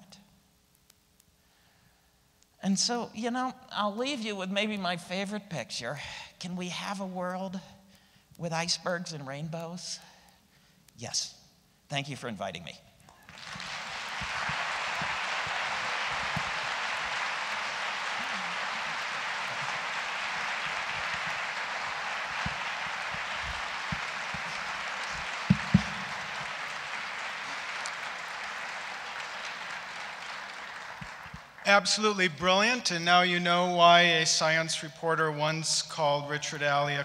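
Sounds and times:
audience applauding: 13.1s - 32.2s.

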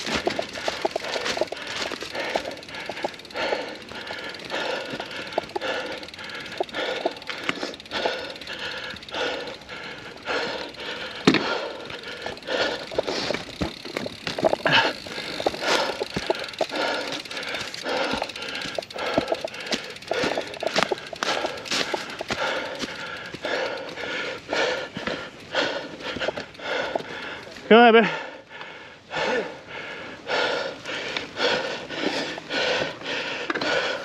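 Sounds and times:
chain and frame rattling: 0.0s - 27.6s
mountain bike tyre noise: 0.0s - 34.0s.

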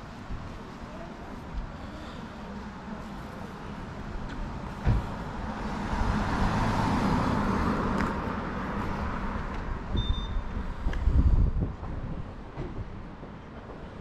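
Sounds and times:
car driving past: 4.8s - 9.5s.

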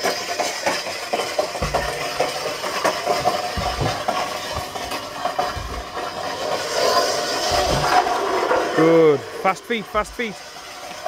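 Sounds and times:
sled scraping along tarmac: 0.0s - 11.0s
dull thumps: 1.4s - 8.5s, 10.0s - 10.4s.

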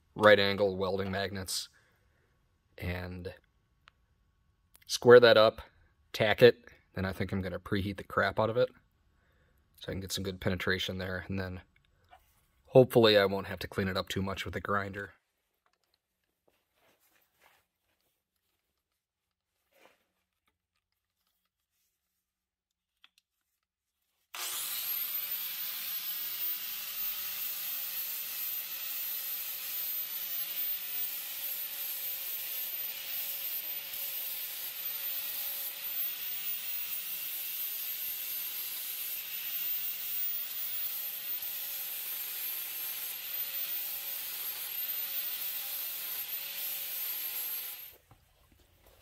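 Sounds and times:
angle grinder grinding metal: 24.4s - 48.0s.

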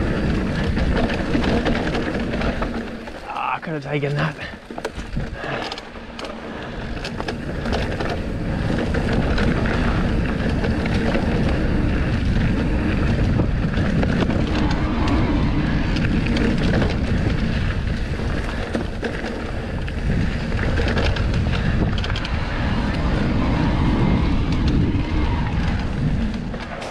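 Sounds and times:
bike knocks and rattles: 0.0s - 15.4s, 16.0s - 22.7s
bike rolling over dirt trail: 0.0s - 26.9s
wind buffeting microphone: 0.0s - 26.9s.

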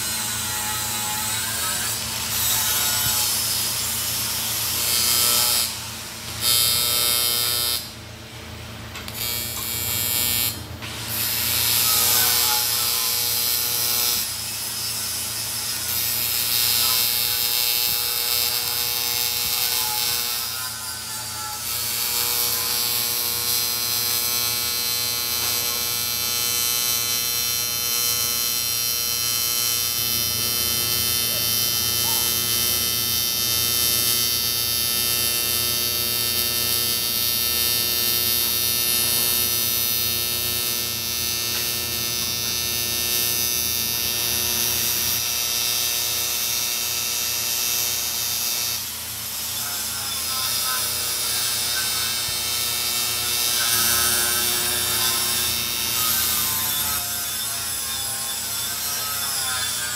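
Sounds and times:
machine hum: 50.2s - 58.1s.

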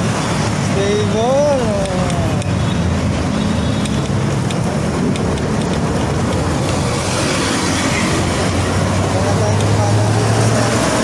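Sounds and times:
road traffic rumble: 0.0s - 11.0s.

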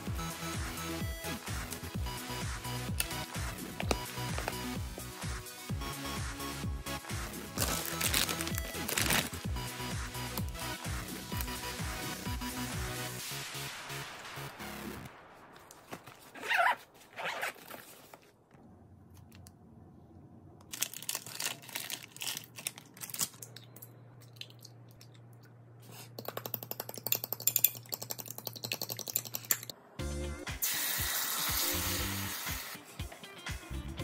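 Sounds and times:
packet crinkling: 7.6s - 9.4s, 20.7s - 23.7s
rustling of a lunch bag: 15.8s - 18.4s.

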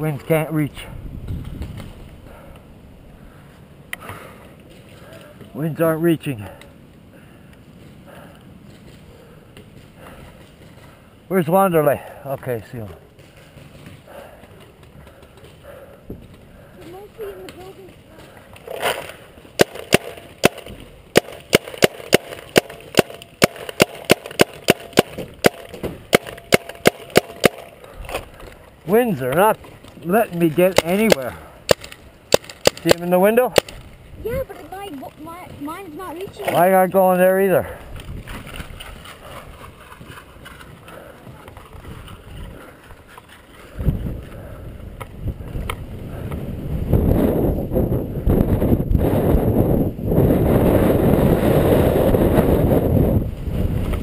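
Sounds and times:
wind and handling rumble: 0.0s - 54.0s
paintball marker firing: 18.6s - 27.8s, 30.7s - 33.8s.

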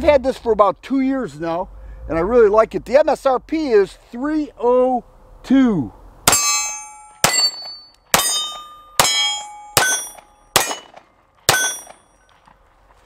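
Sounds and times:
bullet clanging on steel plate: 6.3s - 12.3s
pistol shots: 7.2s - 12.0s.

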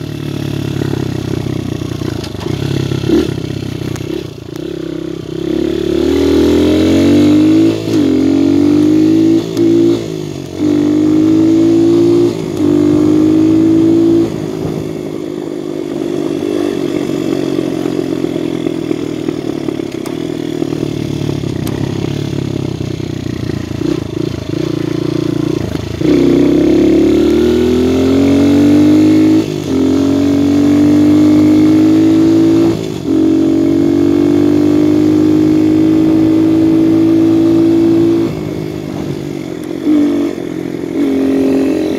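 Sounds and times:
dirt bike engine shifting gears: 0.0s - 4.8s, 6.0s - 14.8s, 16.8s - 22.7s.

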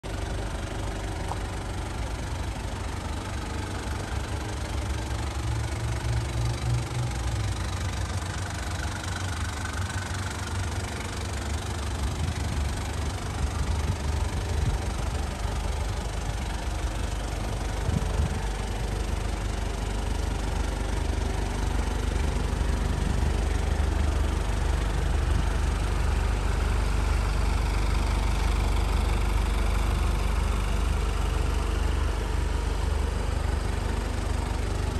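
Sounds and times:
diesel engine idling: 0.0s - 34.9s.

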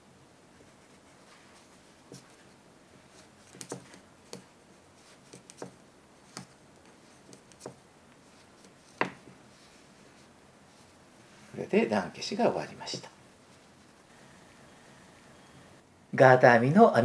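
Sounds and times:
wooden knitting needles clicking: 3.5s - 4.5s, 5.3s - 7.8s.

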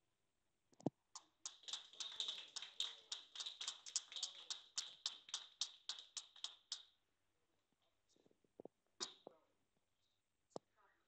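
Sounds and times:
people clapping: 1.2s - 6.8s.

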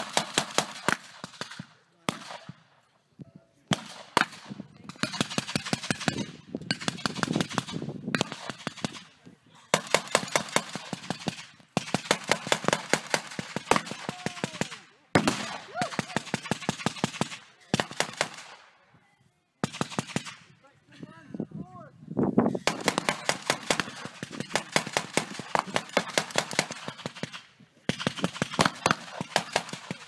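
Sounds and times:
single gunshots: 3.7s - 6.1s, 15.2s - 18.6s
automatic gunfire bursts: 22.7s - 30.0s.

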